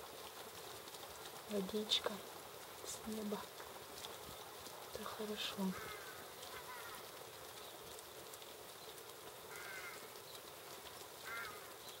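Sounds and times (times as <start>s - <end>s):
light rain falling on trees: 0.0s - 12.0s
bird calling: 8.8s - 10.5s, 11.2s - 12.0s.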